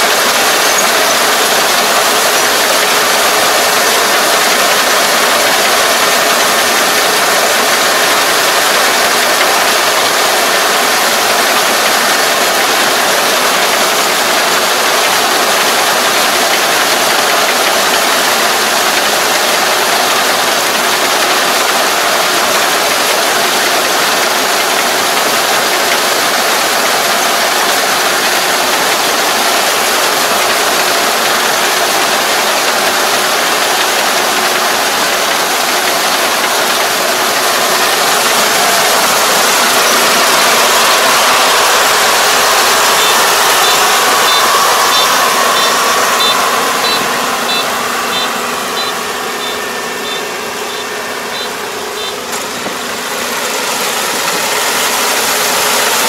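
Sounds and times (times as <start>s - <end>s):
combine harvester running: 0.0s - 56.0s.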